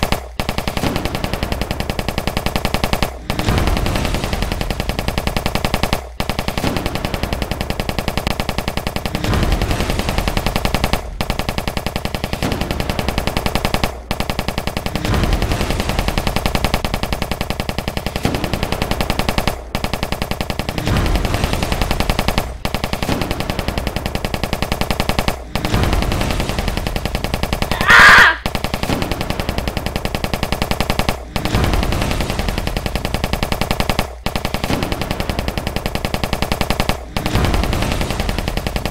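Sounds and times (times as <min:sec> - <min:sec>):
rapid machine-gun fire: 0:00.0 - 0:38.9
sharp blast: 0:25.6 - 0:29.2.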